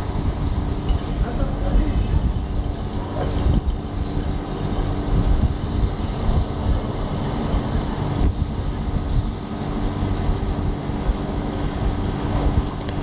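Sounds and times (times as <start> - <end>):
low mechanical hum: 0.0 - 13.0
low traffic rumble: 0.0 - 13.0
wind buffeting microphone: 0.0 - 13.0.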